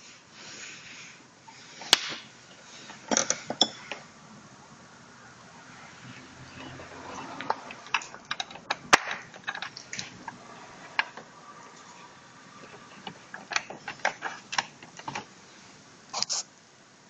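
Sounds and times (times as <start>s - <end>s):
faint hiss: 0.0s - 7.5s, 14.3s - 17.0s.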